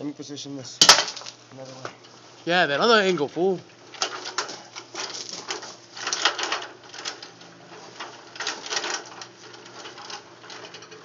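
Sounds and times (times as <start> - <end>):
ladder clattering and scraping: 3.9 - 11.0.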